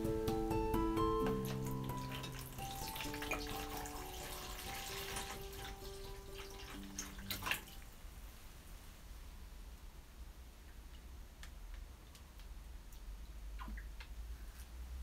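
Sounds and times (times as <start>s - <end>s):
water pouring into a tub: 1.4s - 7.9s.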